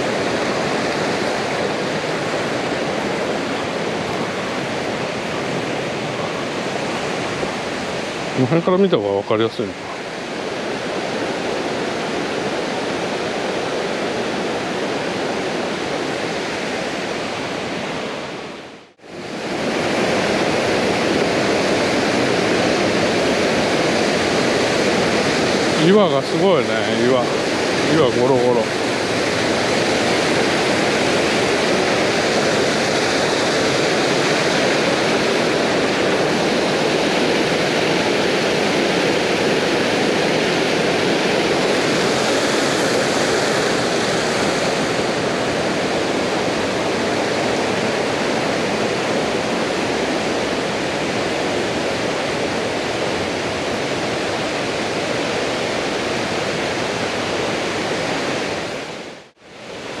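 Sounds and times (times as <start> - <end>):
stream rushing over boulders: 0.0 - 60.0.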